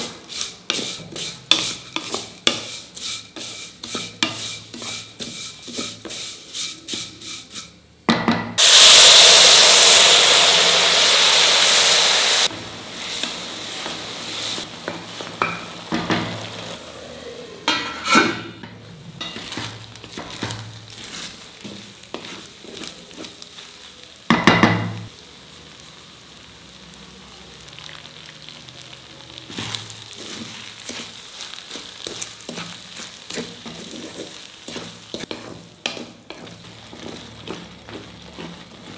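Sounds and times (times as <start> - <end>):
loud sizzle: 0.0 - 7.8, 8.6 - 38.9
spatula scraping a steel pan: 0.0 - 7.8, 17.7 - 23.4, 29.5 - 38.9.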